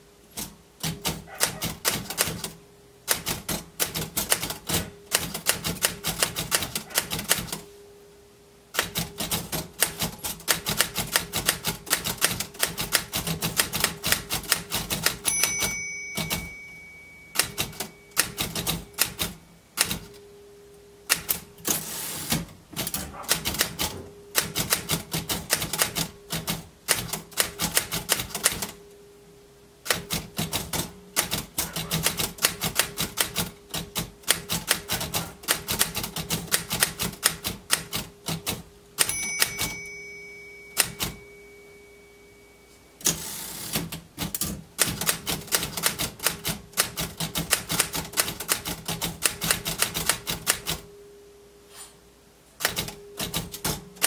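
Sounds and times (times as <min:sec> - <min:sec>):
typewriter key strikes: 0:00.4 - 0:07.6, 0:08.8 - 0:20.2, 0:22.8 - 0:28.8, 0:29.9 - 0:41.3, 0:43.0 - 0:50.8, 0:52.6 - 0:54.0
typewriter margin bell ringing: 0:15.0 - 0:20.2, 0:39.0 - 0:43.2.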